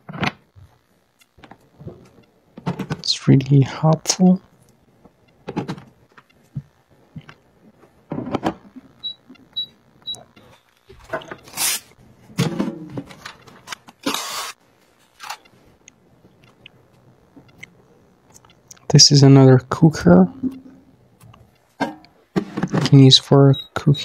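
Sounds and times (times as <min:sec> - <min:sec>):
short high electronic beeps: 0:23.5 - 0:24.0.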